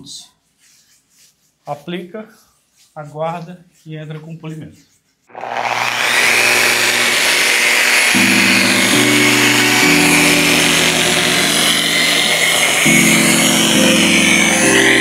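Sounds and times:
electric rotary polisher running: 5.3 - 15.0.

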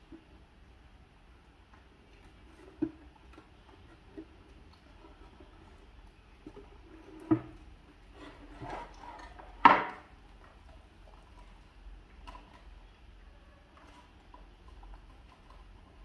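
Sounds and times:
wooden stand knocking: 9.6 - 10.0.

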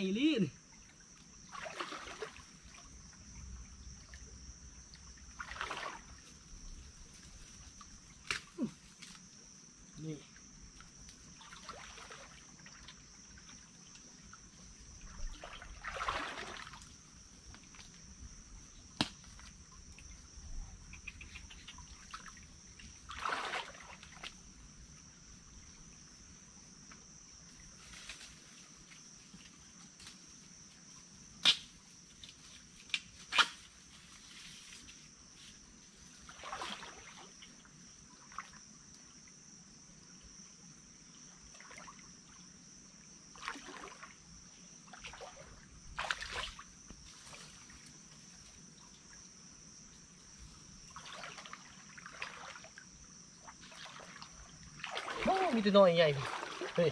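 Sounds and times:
insects droning: 0.0 - 56.9
sharp twig snaps: 8.2 - 9.2, 19.0 - 19.4, 31.4 - 31.8, 32.9 - 33.6
brushing rustles in undergrowth: 32.2 - 36.3.

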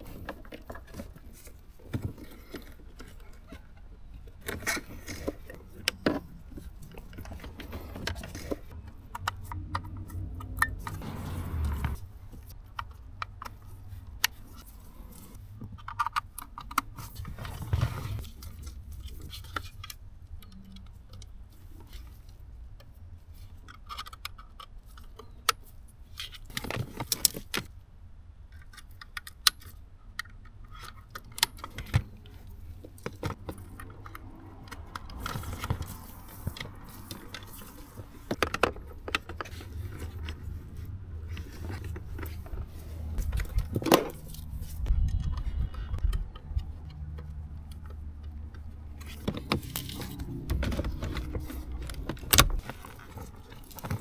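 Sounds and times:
cables and connectors clicking: 0.0 - 14.6, 28.5 - 40.6, 41.2 - 54.0
low steady rumble: 0.0 - 15.9, 31.8 - 54.0.

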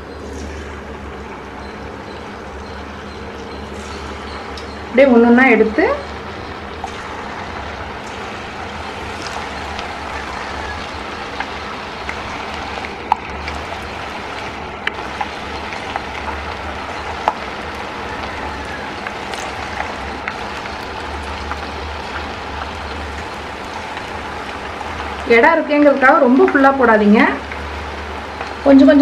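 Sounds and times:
chicken deep-frying in oil: 0.0 - 29.0
popping and crackling oil: 6.1 - 29.0.

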